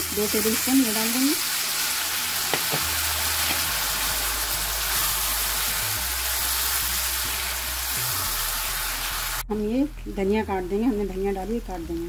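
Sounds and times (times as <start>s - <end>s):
potatoes sizzling in oil: 0.0s - 9.4s.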